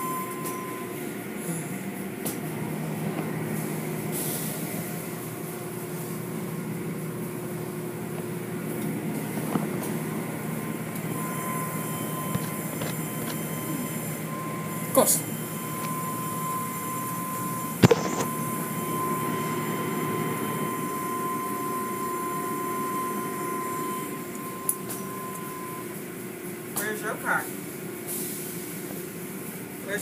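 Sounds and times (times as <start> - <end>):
car wash machinery hum: 0.0 - 30.0
steady high tone: 10.6 - 25.9.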